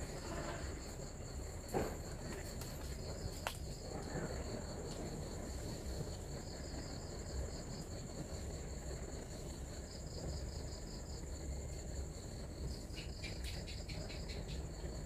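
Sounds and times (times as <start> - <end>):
insect pulsing trill: 5.8 - 15.0
insect high-pitched trill: 9.8 - 15.0.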